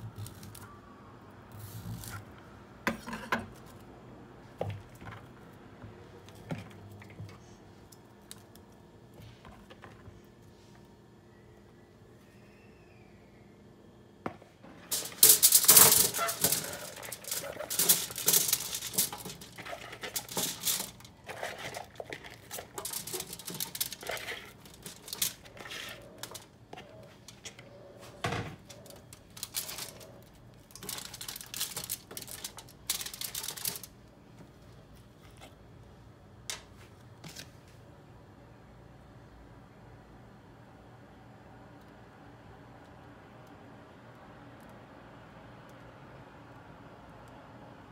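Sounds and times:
foil crinkling: 0.0 - 0.7, 14.9 - 27.6, 28.6 - 34.0
vegetables clattering onto tray: 14.7 - 27.6, 28.3 - 33.9.

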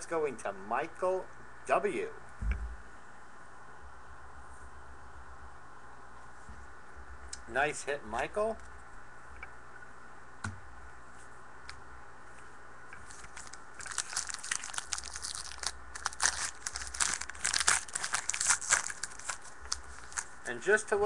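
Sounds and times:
wrapper tearing and crinkling: 13.0 - 20.4.

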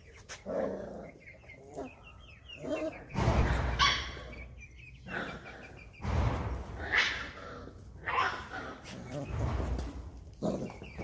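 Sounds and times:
low rumbling noise: 3.1 - 5.0.

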